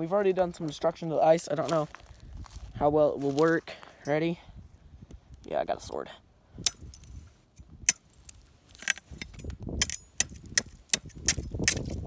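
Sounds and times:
stick cracking thin ice: 9.8 - 12.0.

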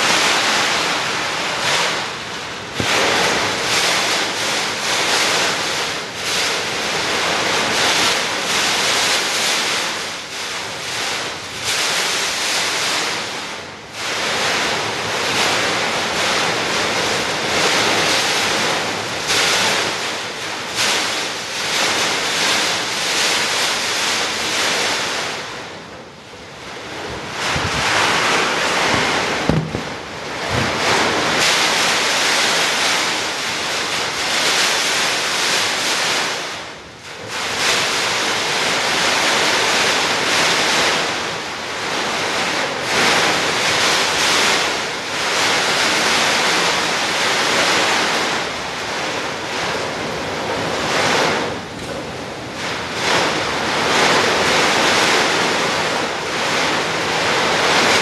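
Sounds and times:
wind blowing hard in gusts: 0.0 - 58.0.

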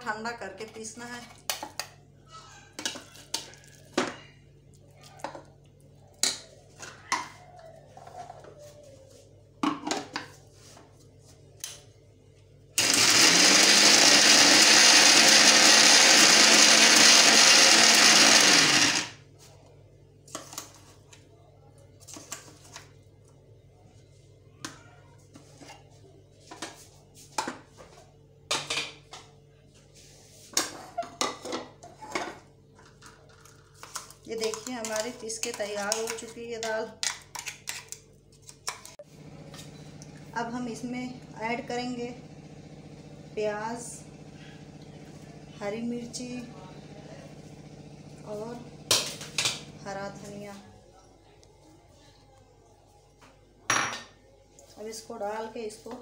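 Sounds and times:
mixer grinder motor: 12.8 - 19.2, 39.0 - 50.4.

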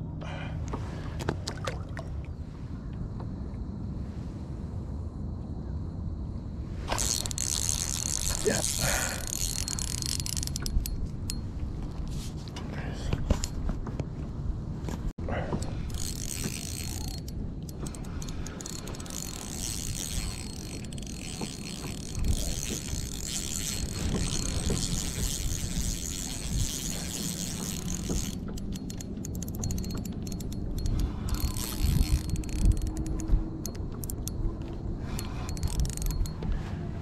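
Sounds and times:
clicks from handling reel: 6.9 - 11.4, 15.9 - 34.4, 35.1 - 36.5
fishing reel gears whirring: 6.9 - 11.4, 15.7 - 36.6.

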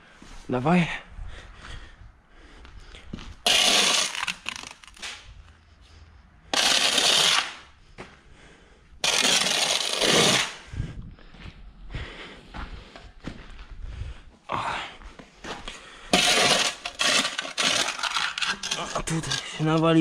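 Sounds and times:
shovel scraping soil: 3.4 - 5.2, 6.5 - 7.7, 9.0 - 10.6, 16.1 - 19.8.

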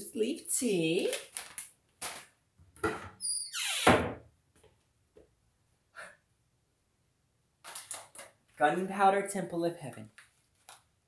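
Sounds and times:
cupboard door creaking: 2.8 - 4.2
cupboard door squeak: 2.8 - 4.2.

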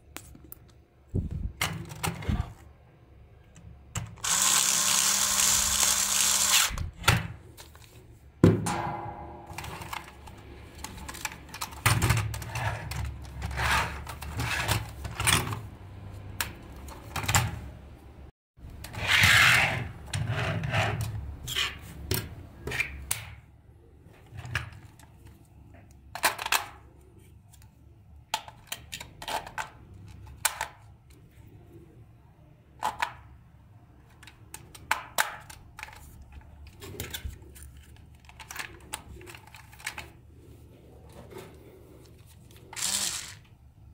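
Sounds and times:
plastic toy parts clicking: 42.7 - 43.5.

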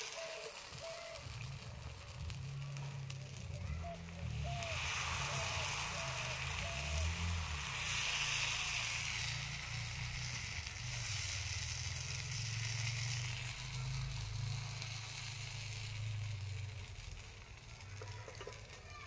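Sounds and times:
pancake sizzling in pan: 0.0 - 19.0.

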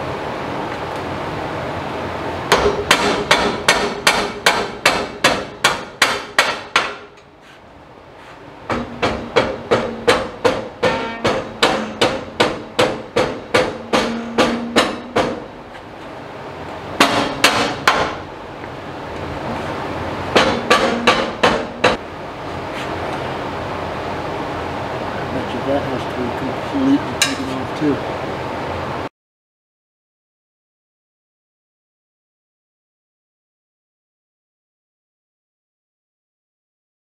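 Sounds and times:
rubber mallet hammering steel: 2.5 - 7.2, 8.7 - 15.5, 17.0 - 18.2, 20.3 - 22.0, 27.2 - 27.5.

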